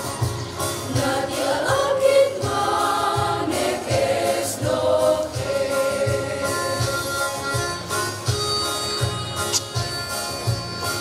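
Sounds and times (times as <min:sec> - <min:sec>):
choir singing a hymn: 0:00.7 - 0:07.4.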